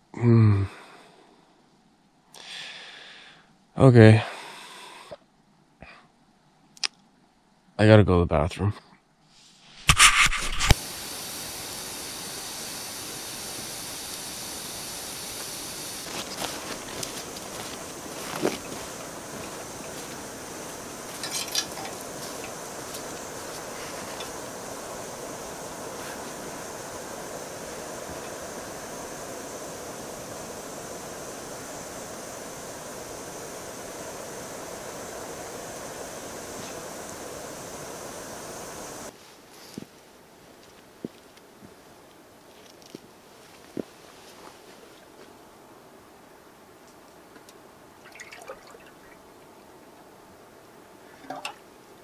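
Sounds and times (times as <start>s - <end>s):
campfire hissing: 2.3s - 5.2s, 9.3s - 52.0s
fire crackles: 9.6s - 41.4s
steady rushing outdoor noise: 10.7s - 39.2s.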